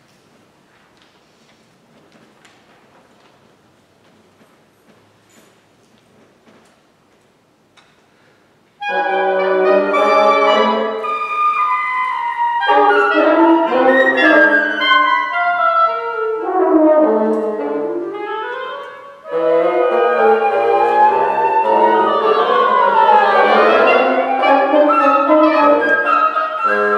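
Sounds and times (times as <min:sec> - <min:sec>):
woodwind quintet playing: 0:08.8 - 0:26.9.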